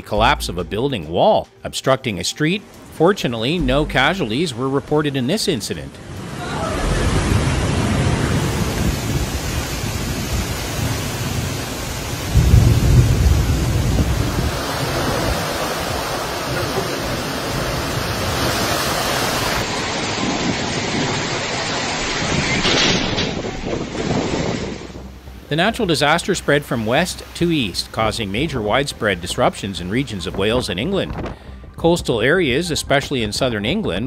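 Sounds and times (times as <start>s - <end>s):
loud low rumble: 3.6s - 4.5s, 12.3s - 14.6s
storm wind: 6.0s - 25.5s
heavy rain: 6.0s - 28.5s
wind buffeting microphone: 6.2s - 25.4s.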